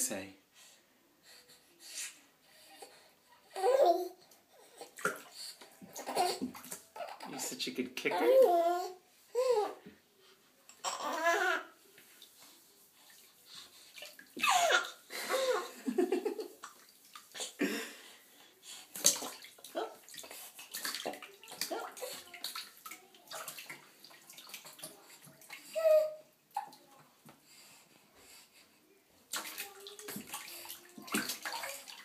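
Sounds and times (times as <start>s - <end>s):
bath water splashing: 4.8s - 7.6s, 12.1s - 17.8s, 18.8s - 26.9s, 29.3s - 32.0s.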